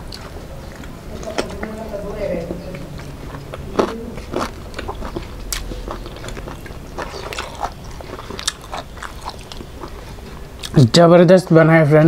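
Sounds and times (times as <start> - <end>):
wet chewing clicks and smacks: 0.0 - 1.8, 2.7 - 11.0
people chewing food: 0.0 - 11.7.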